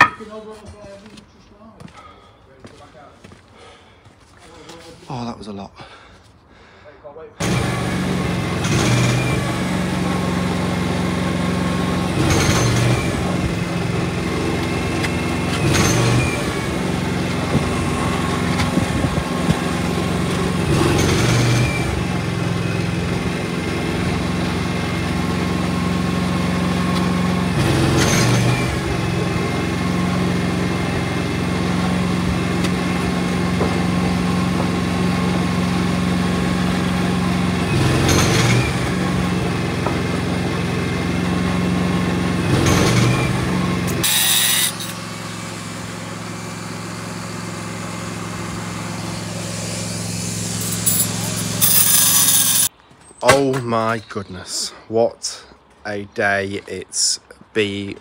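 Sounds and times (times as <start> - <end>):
engine running with surges: 7.4 - 52.7.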